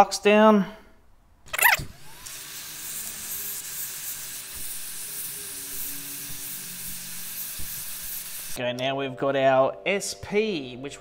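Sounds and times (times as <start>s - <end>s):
hot air gun hissing: 1.5s - 8.6s.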